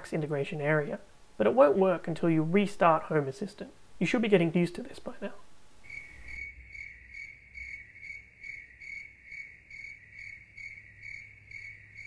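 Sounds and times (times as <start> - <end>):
cricket chirping: 5.8 - 12.0.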